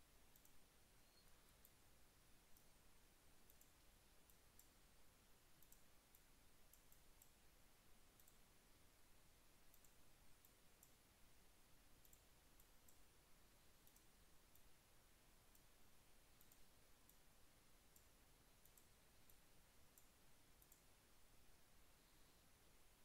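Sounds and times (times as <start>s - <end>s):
computer mouse clicks: 0.3s - 1.8s, 2.4s - 2.8s, 3.4s - 8.5s, 9.6s - 11.0s, 11.9s - 14.8s, 15.5s - 21.0s.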